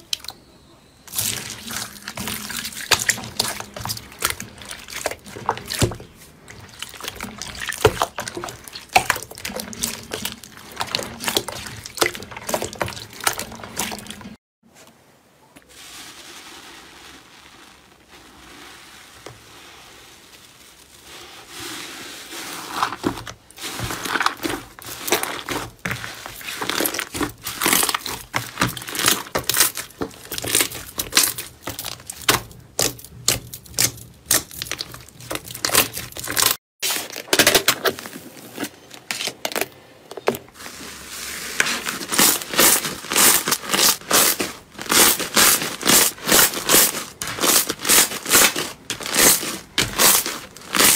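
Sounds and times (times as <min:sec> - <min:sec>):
slime crackling and popping: 0:42.0 - 0:50.9.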